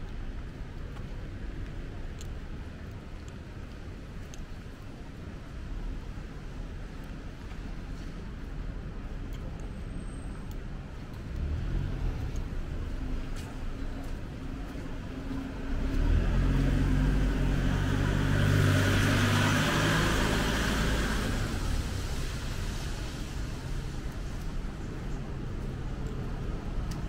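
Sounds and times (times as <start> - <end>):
tyres hissing on wet road: 11.2 - 13.4, 15.6 - 26.9.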